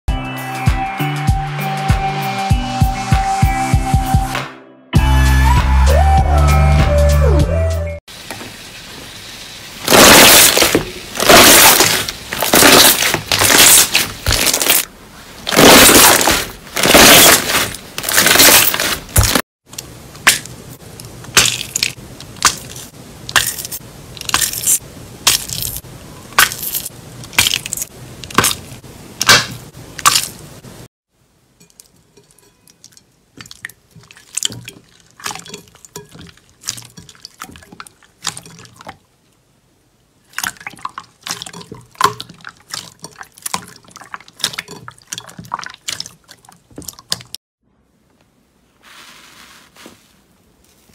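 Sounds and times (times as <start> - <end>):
slime squelching and popping: 9.9 - 14.9, 15.5 - 19.4, 21.3 - 25.8.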